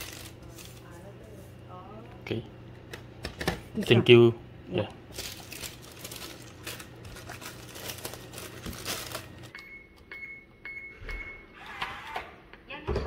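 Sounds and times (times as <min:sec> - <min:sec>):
packaging crinkling: 0:00.0 - 0:01.0, 0:05.1 - 0:09.5.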